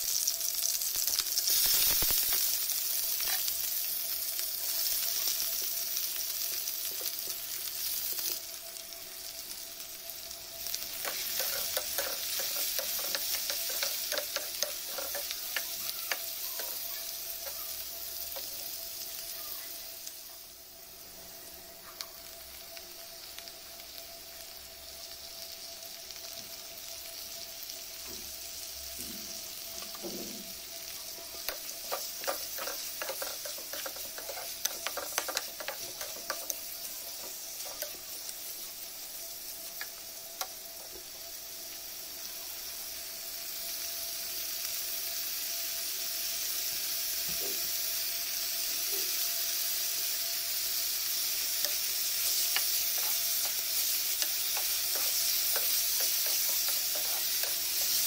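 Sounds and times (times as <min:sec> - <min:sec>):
chicken sizzling in hot oil: 0:00.0 - 0:58.0.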